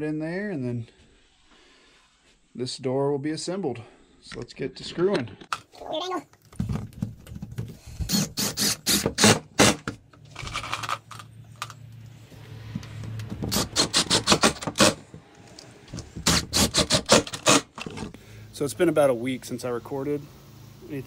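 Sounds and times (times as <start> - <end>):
impact driver hammering: 13.2 - 15.2, 16.1 - 18.0.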